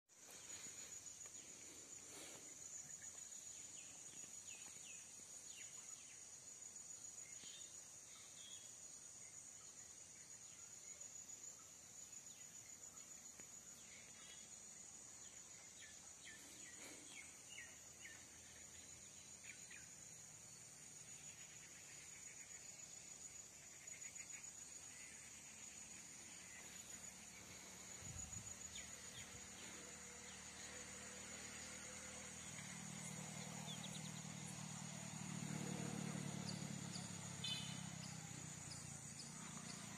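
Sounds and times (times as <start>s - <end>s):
high-pitched insect drone: 9.4s - 39.9s.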